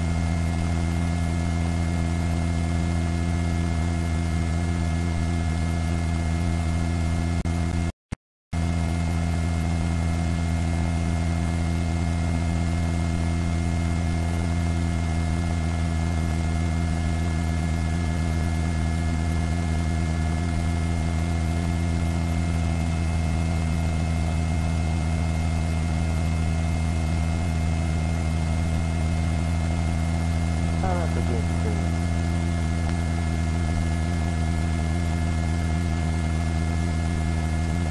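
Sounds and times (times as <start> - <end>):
helicopter engine and rotor drone: 0.0 - 7.9, 8.5 - 37.9.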